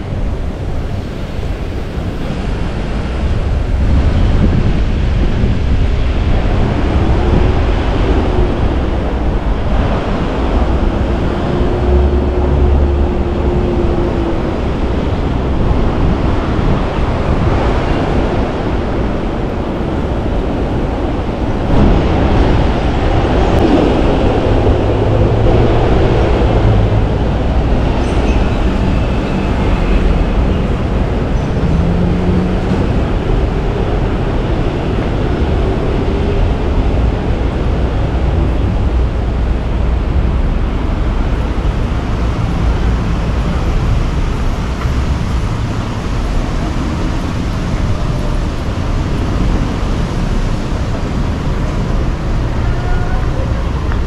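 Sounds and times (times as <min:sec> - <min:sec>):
passing vehicles rumble: 0:00.0 - 0:54.0.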